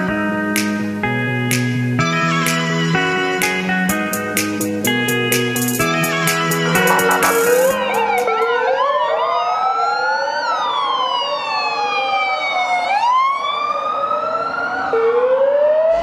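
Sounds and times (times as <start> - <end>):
police sirens wailing: 6.5 - 16.0.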